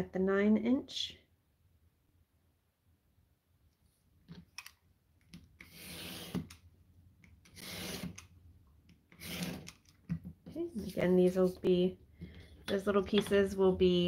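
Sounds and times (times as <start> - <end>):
knife slicing through paper: 7.6 - 8.2.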